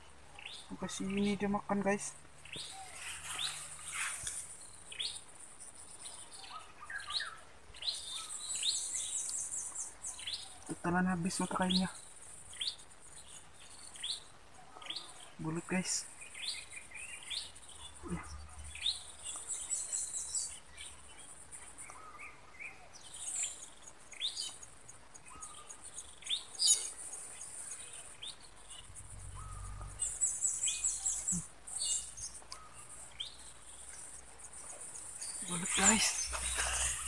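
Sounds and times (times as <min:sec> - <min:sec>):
small birds chirping: 0:00.0 - 0:37.0.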